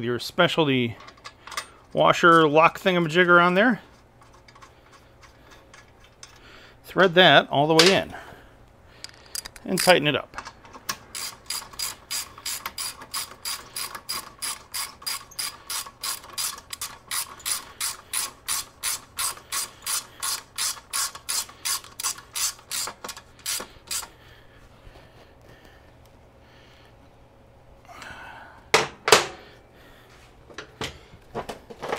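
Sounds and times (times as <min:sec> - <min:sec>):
ratchet wrench clicking: 0:09.0 - 0:10.0, 0:11.1 - 0:24.1.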